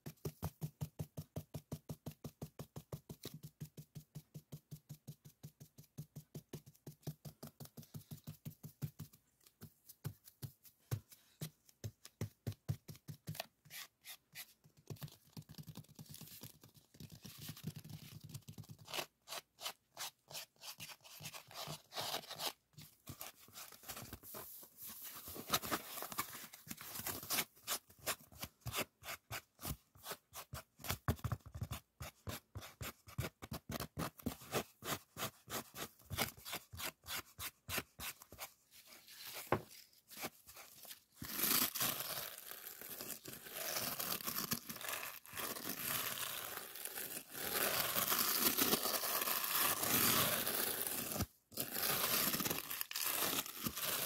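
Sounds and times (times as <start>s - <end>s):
fingertips tapping on foam sponge: 0.0s - 19.2s.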